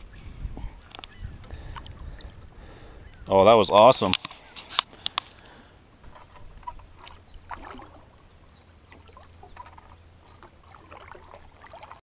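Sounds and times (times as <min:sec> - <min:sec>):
paddle drawn through water: 0:04.1 - 0:12.0
water dripping off paddle: 0:05.0 - 0:08.2, 0:08.9 - 0:12.0.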